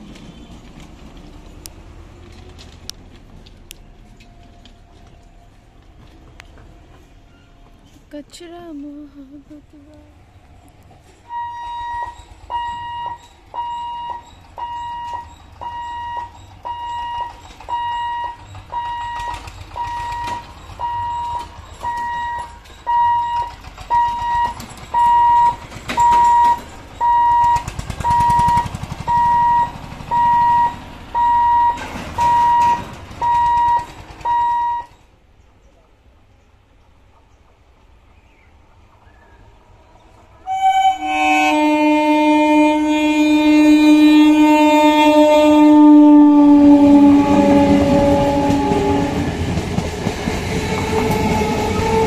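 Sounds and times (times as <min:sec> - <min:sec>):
vehicle engine rumbling past: 0:10.1 - 0:34.8
level crossing warning beeps: 0:11.3 - 0:35.1.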